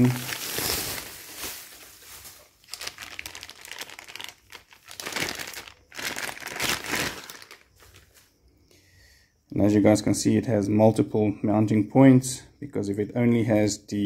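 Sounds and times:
bubble wrap and plastic crinkling: 0.0 - 8.2.

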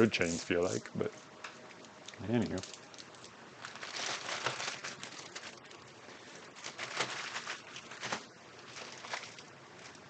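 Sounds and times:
plastic bags crinkling: 1.9 - 10.0.

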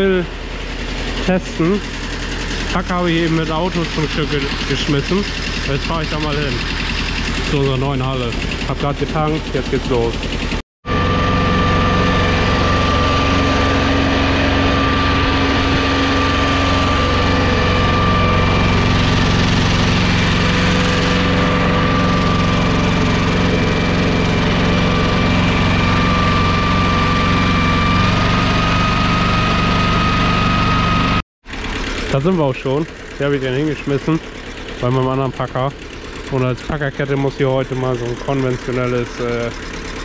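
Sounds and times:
tractor diesel engine running: 0.0 - 40.0
steady high whine: 10.8 - 31.2.

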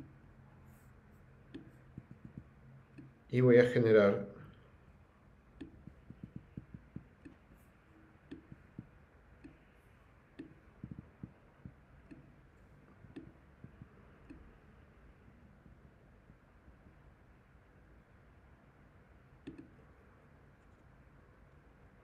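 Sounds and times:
faint computer mouse clicks: 19.4 - 19.8.

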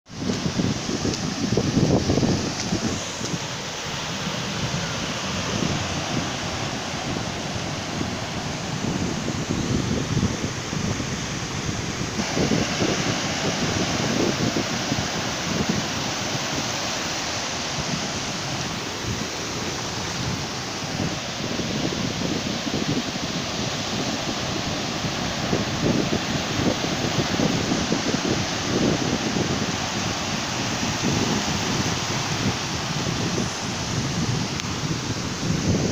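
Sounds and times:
surf washing up a beach: 0.1 - 35.9
wind buffeting microphone: 0.1 - 35.9.

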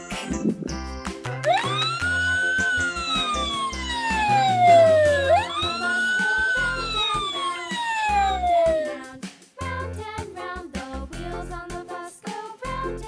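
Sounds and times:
children's background music: 0.0 - 13.0
fire engine siren wailing: 1.4 - 9.1.

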